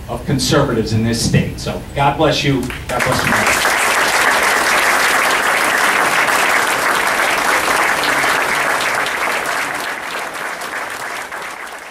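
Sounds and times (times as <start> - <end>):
audience applauding: 2.6 - 11.9.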